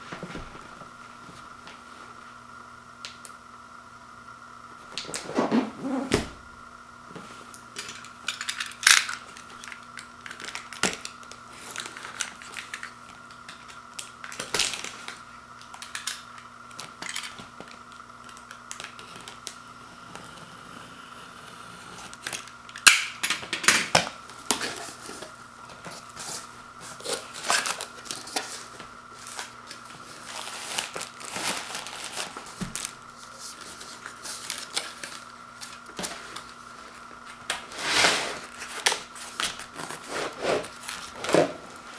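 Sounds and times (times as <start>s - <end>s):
tearing tape: 26.2s - 36.5s
styrofoam rubbing: 37.7s - 41.9s.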